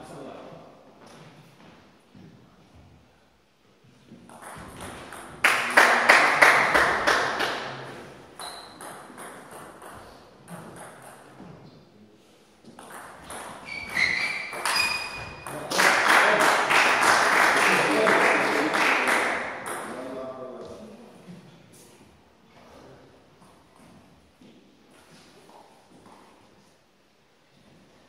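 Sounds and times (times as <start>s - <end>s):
scattered applause: 5.4s - 7.9s, 15.5s - 19.6s
short high squeaks: 8.4s - 8.8s, 13.6s - 15.5s.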